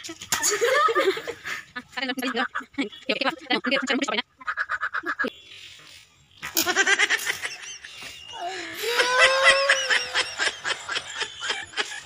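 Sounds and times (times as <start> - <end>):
people laughing: 0.4 - 4.1, 6.6 - 12.0
high squeal of laughter: 6.6 - 12.0.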